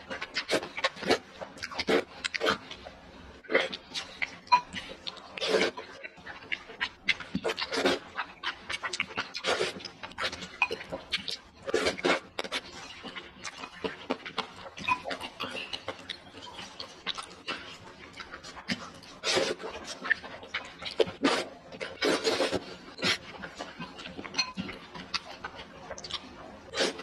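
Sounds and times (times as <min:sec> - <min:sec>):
wet chewing and mouth smacks: 0:00.0 - 0:27.0
noodles being slurped: 0:07.4 - 0:10.6, 0:17.0 - 0:20.0, 0:21.0 - 0:23.8, 0:26.7 - 0:27.0.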